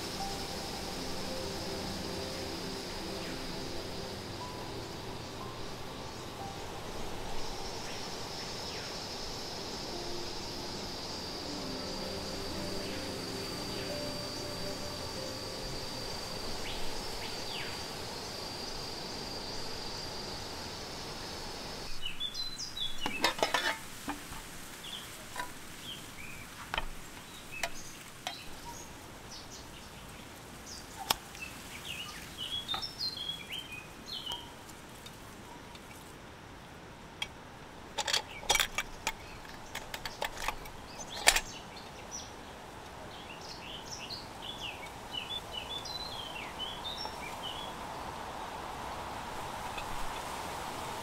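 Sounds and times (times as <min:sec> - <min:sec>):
small birds chirping: 0:00.0 - 0:23.7, 0:24.6 - 0:36.1, 0:38.0 - 0:48.4
steady background hiss: 0:00.0 - 0:51.0
metal lantern clinks and knocks: 0:23.0 - 0:24.3, 0:38.0 - 0:41.6.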